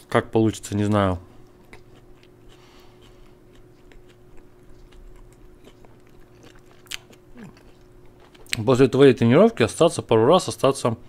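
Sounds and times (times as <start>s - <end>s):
chewing pastry: 0.9s - 8.8s.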